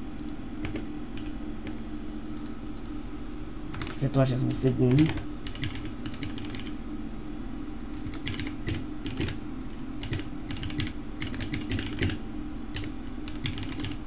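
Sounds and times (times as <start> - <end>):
low steady hum: 0.0 - 14.0
computer keyboard typing: 0.2 - 1.4, 3.7 - 4.0, 4.9 - 6.7, 8.0 - 9.4, 10.0 - 14.0.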